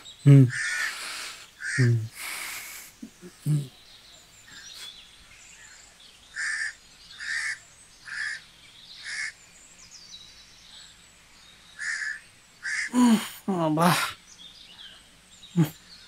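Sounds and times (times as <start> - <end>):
small birds chirping: 0.0 - 16.0
crow cawing: 0.5 - 1.9, 6.3 - 8.4, 9.0 - 9.4, 11.8 - 13.3.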